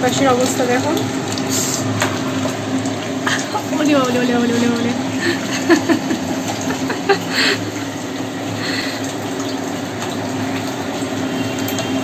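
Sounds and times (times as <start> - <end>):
gas burner rushing: 1.1 - 3.8.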